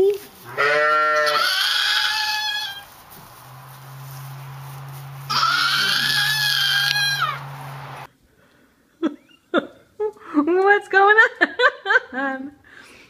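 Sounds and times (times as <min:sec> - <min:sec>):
lambs bleating: 0:00.4 - 0:02.9, 0:05.2 - 0:07.8
low steady hum: 0:02.7 - 0:08.1.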